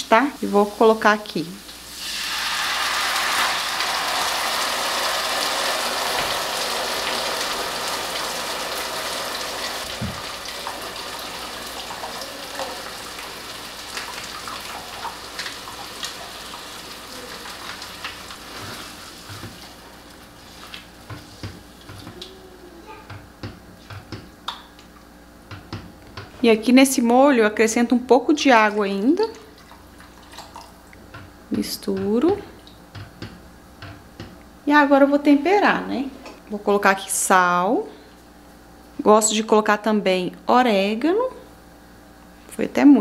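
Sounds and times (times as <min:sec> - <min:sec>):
sauce sizzling in a hot pan: 0:00.3 - 0:20.7.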